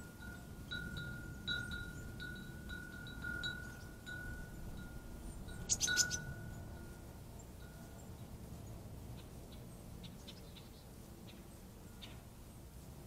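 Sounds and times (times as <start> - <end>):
wind chime ringing: 0.0 - 8.0.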